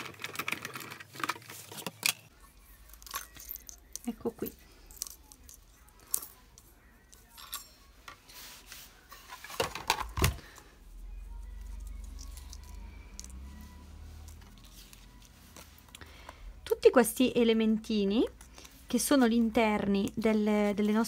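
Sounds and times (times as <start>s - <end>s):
plastic plates clattering: 9.3s - 10.5s.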